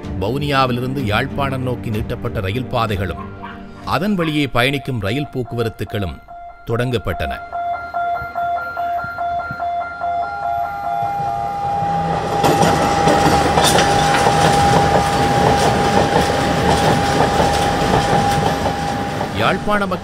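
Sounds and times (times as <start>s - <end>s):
steady high tone: 3.2s - 20.0s
train passing: 9.8s - 20.0s
wheels clattering over rail joints: 11.1s - 20.0s.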